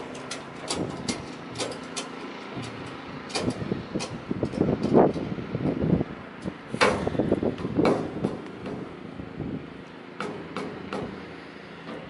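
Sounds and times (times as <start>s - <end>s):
metal fence parts clinking and rattling: 0.0s - 5.2s.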